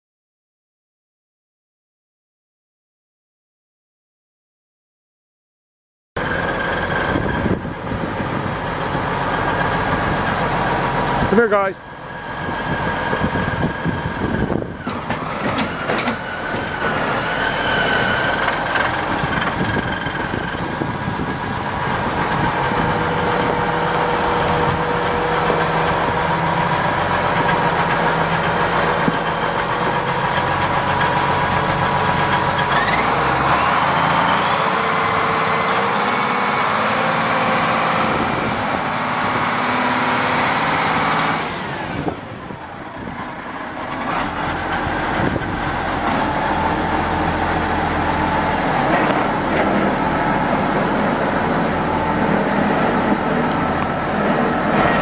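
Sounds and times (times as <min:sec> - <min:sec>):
tractor diesel engine running: 0:06.2 - 0:55.0.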